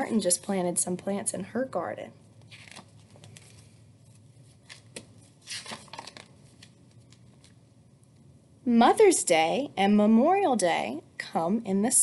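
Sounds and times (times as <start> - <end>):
photographs shuffling paper rustle: 2.4 - 7.6.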